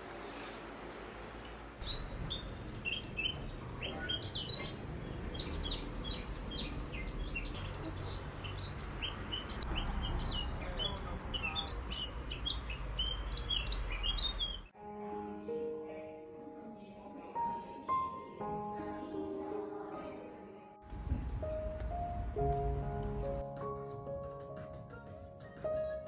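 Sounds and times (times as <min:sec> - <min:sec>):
small birds chirping: 0:01.8 - 0:14.7.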